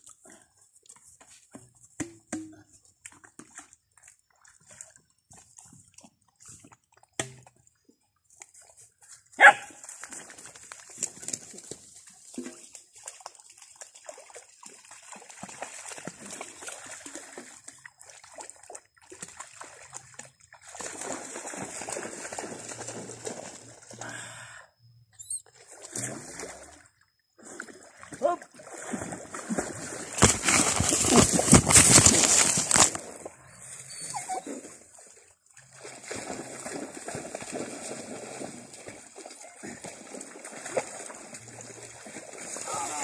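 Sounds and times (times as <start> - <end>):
puppy barking: 9.4 - 9.8
water sloshing: 25.4 - 43.0
rustling through grass: 30.2 - 33.2
puppies yipping: 33.6 - 34.6.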